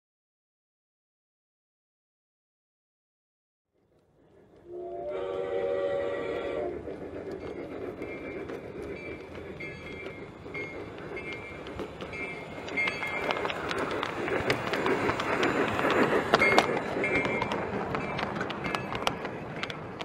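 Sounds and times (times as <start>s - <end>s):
train clicking and rumbling on track: 3.8s - 20.0s
model train chime whistle: 4.7s - 6.7s.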